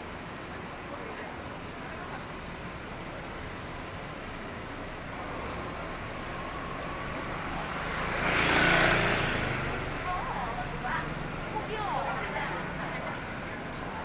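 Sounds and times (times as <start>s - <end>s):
street traffic: 0.0s - 14.0s
motorbike passing: 5.0s - 14.0s.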